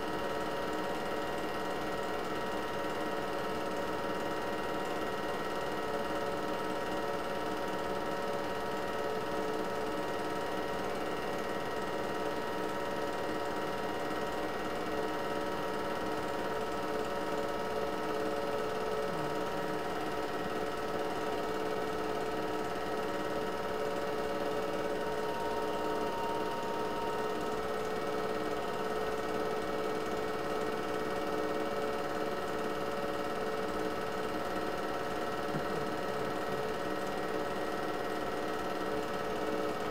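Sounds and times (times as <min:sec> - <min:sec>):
film projector whirring: 0:00.0 - 0:39.9
constant humming tones: 0:18.4 - 0:31.2.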